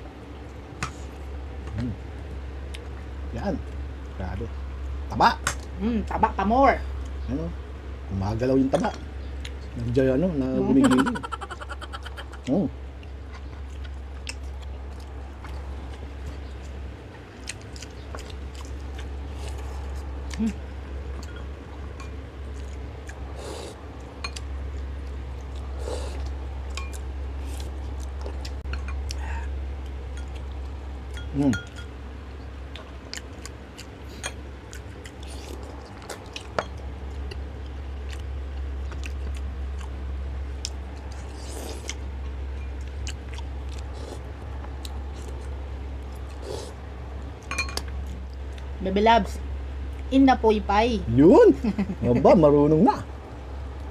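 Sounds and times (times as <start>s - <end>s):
low hum: 0.0s - 53.9s
chewing and lip-smacking: 11.4s - 21.4s, 22.4s - 29.2s, 32.6s - 48.7s.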